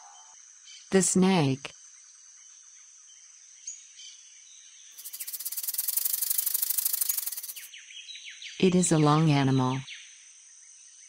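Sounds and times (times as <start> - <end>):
buzzing rattle with hiss: 4.9 - 7.7.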